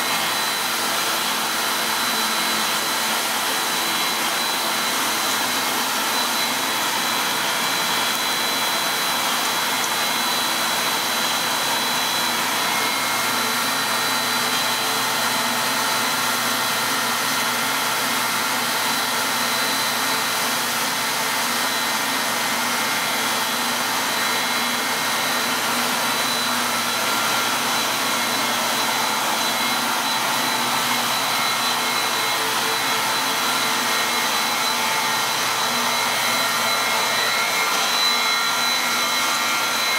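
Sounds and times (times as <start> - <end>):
machine motors running: 0.0 - 39.9
thin high whine: 0.0 - 39.9.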